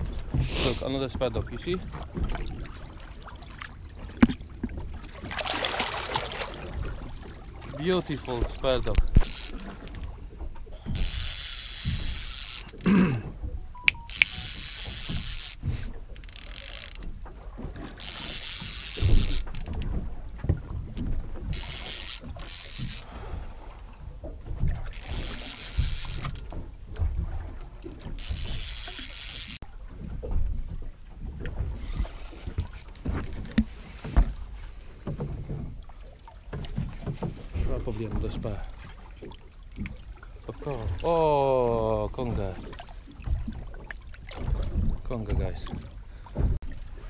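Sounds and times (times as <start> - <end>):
water slapping boat hull: 0.0 - 47.0
fishing reel winding: 8.8 - 10.2, 10.9 - 12.9, 13.8 - 17.1, 18.0 - 19.8, 21.5 - 23.1, 24.9 - 26.6, 28.2 - 29.6.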